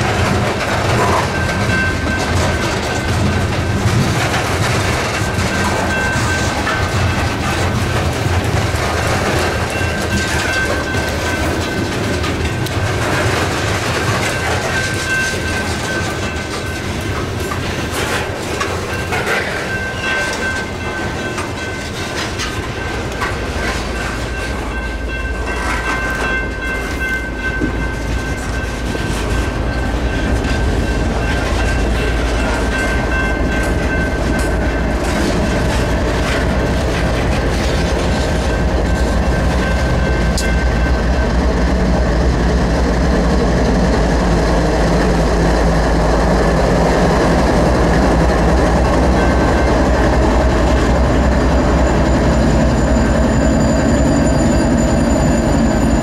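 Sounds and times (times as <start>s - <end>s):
train wheels clicking over rail joints: 0.0s - 56.0s.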